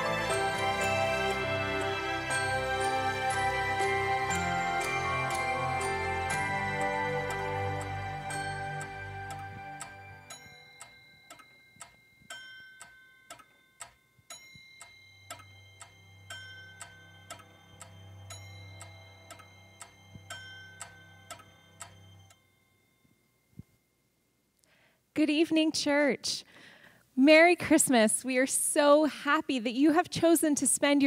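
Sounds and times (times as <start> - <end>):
soft sustained music: 0.0 - 11.8, 14.3 - 23.1
clock ticking: 4.8 - 22.4.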